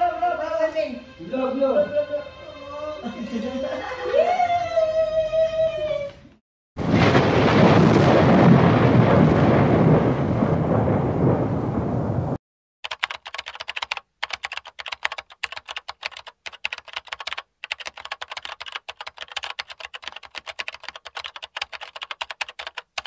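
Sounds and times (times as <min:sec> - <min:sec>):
computer keyboard typing: 0:12.8 - 0:23.0.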